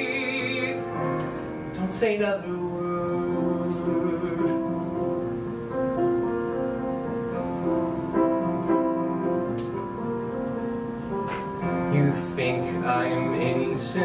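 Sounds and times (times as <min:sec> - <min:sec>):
slow gentle piano: 0:00.0 - 0:14.0.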